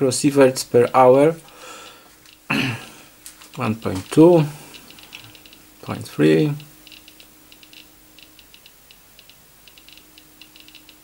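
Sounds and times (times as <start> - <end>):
geiger counter clicking: 3.2 - 5.7, 6.5 - 11.0.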